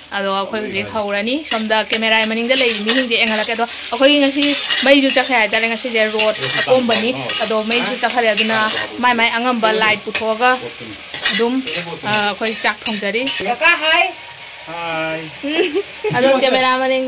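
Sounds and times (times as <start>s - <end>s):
food sizzling: 0.0s - 17.0s
woman talking: 0.1s - 10.6s, 11.3s - 14.2s, 15.4s - 17.0s
metal ladle scraping in pot: 1.4s - 9.1s, 9.8s - 13.5s.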